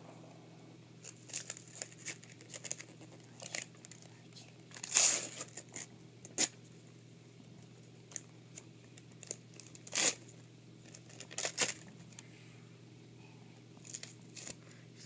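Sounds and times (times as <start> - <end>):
wrapping paper tearing: 1.0 - 4.0, 4.7 - 6.6, 9.2 - 11.9
paper crinkling: 1.0 - 6.6, 8.9 - 12.2, 13.8 - 14.6.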